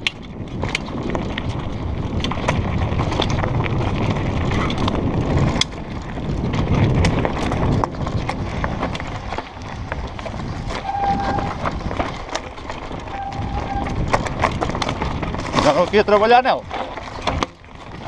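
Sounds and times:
bike clicks and rattles: 0.0 - 18.0
steady rumble: 0.0 - 18.0
tyres crunching over stones: 0.0 - 18.0
short squeals: 10.8 - 11.6, 13.1 - 14.0.

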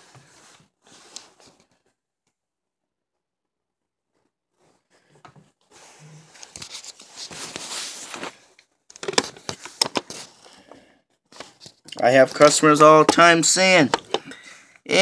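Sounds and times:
plastic rustling and scraping: 4.5 - 14.3.

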